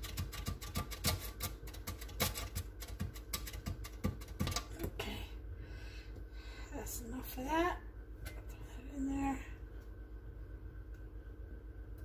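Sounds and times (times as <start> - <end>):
potato rasping on metal grater: 0.0 - 4.5.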